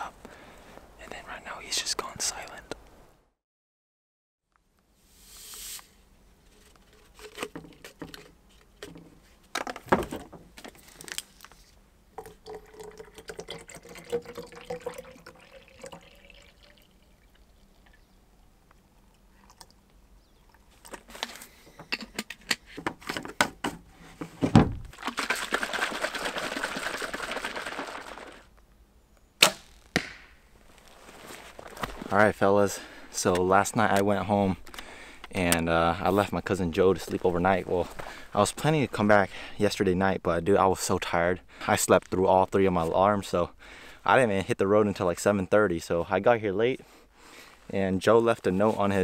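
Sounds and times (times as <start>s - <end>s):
water pouring into bottle: 12.1s - 18.0s, 24.9s - 28.5s
thump: 24.4s - 24.9s
liquid sloshing in shaken bottle: 24.9s - 28.5s.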